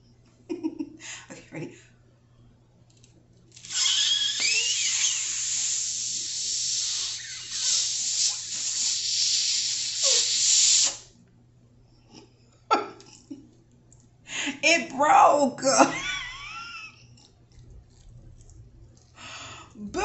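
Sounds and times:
squeaky whistling notes: 3.6s - 5.7s
rushing hiss of breath: 3.6s - 11.1s.

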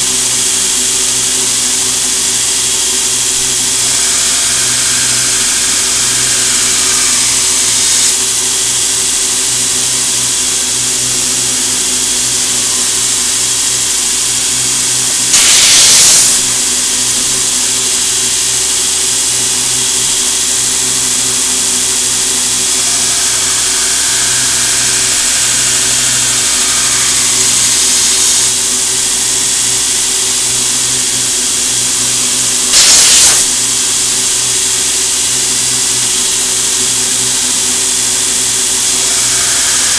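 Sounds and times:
belt grinder humming: 0.0s - 39.9s
knife blade grinding on belt: 3.7s - 8.3s, 15.2s - 16.6s, 22.4s - 29.1s, 32.7s - 33.6s, 38.5s - 39.9s
compressed air blasts: 15.3s - 16.5s, 32.7s - 33.6s.

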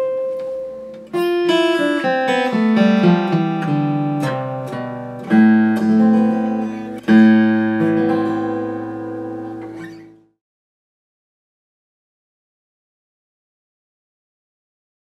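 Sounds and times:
fingerpicked acoustic guitar: 0.0s - 10.4s
strummed guitar chords: 0.0s - 10.4s.

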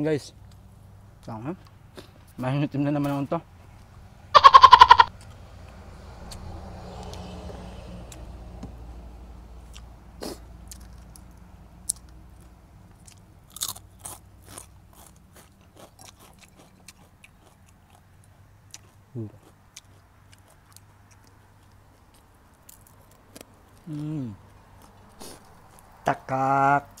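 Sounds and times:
crunching and chewing fried fish: 9.6s - 27.0s.

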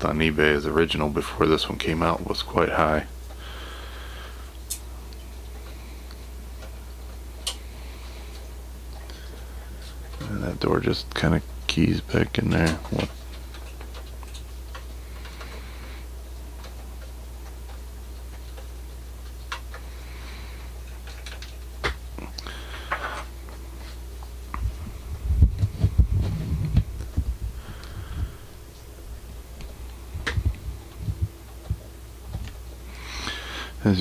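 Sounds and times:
steady low hum: 0.0s - 34.0s
low thumps and rumbling: 24.5s - 32.8s.

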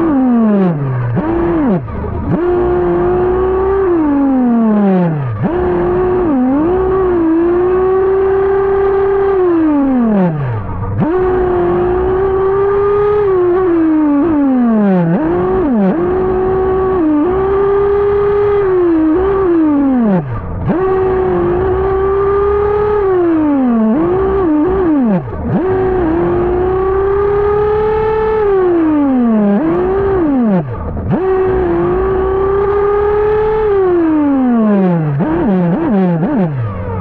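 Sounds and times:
rc buggy nitro engine revving: 0.0s - 37.0s.

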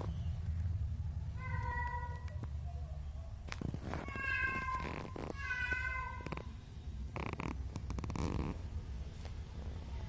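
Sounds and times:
soft rustles: 3.4s - 6.5s
kittens mewing: 3.7s - 6.6s
low purr: 7.1s - 8.7s.

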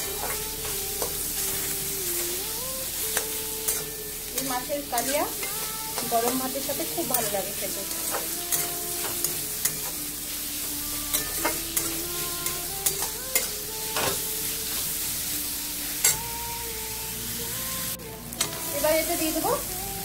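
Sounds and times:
onions sizzling in oil: 0.0s - 20.0s
metal spatula scraping pan: 3.0s - 16.3s.

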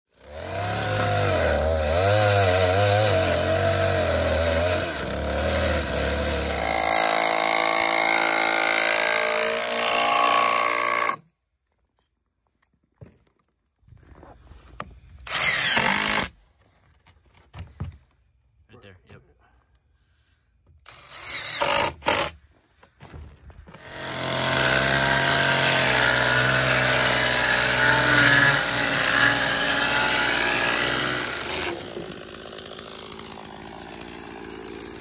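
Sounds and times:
power drill drilling into wood: 0.3s - 11.2s, 15.2s - 16.4s, 20.8s - 22.4s, 23.7s - 35.0s.

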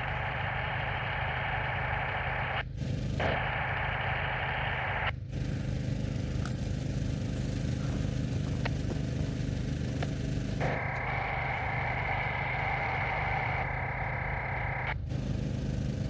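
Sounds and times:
small engine running: 2.6s - 4.2s, 5.0s - 16.0s
hissing pump: 3.2s - 15.0s.

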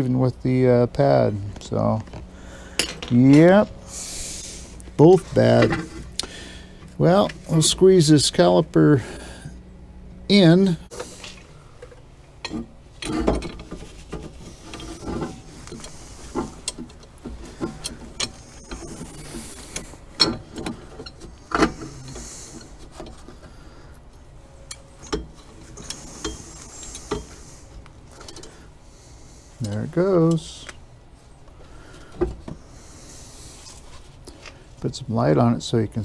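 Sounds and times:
metal tools clicking and knocking: 2.8s - 3.4s, 19.8s - 21.8s.

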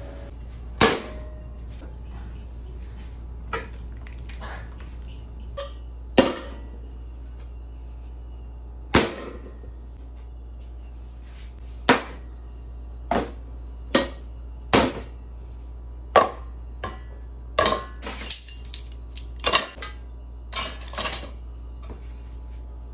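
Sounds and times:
steady low hum: 0.0s - 22.9s
metal utensils clinking on steel: 18.0s - 19.9s.

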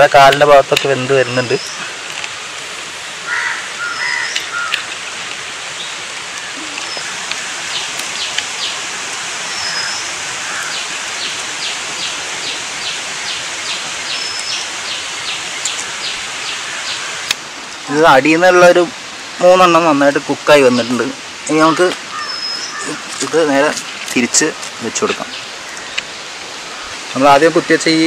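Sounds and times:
outdoor background hiss: 0.0s - 28.0s
bird whistles: 22.2s - 22.8s.

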